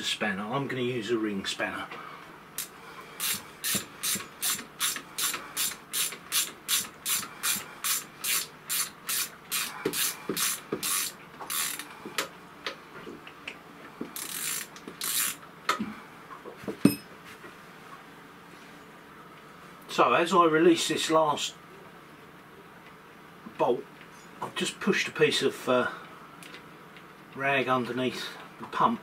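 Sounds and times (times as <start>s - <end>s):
ratcheting spanner clicking: 2.6s - 11.9s, 14.2s - 15.4s.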